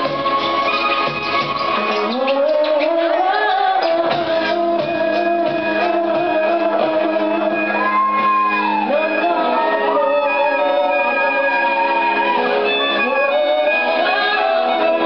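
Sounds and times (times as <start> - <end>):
electric guitar: 0.0 - 15.0
woman singing a long held note: 3.6 - 12.4
violin: 6.7 - 15.0.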